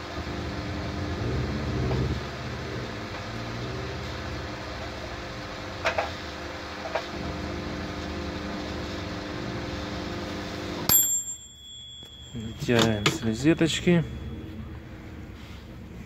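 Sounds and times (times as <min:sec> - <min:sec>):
transformer and fan humming: 0:00.0 - 0:16.0
long beep: 0:11.8 - 0:15.0.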